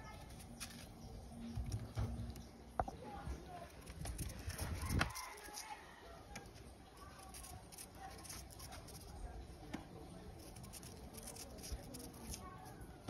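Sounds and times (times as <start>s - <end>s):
knife scraping yam: 3.8s - 5.9s, 10.3s - 12.8s.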